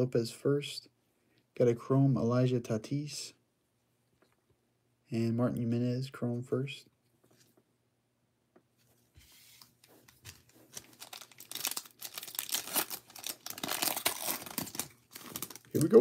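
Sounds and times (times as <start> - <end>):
wrapper tearing and crinkling: 10.7 - 16.0.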